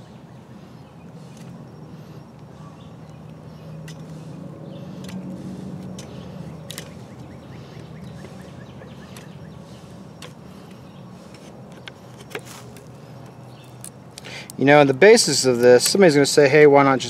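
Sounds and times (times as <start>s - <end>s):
steady low hum: 0.0s - 17.0s
knife scraping cane: 9.0s - 12.9s.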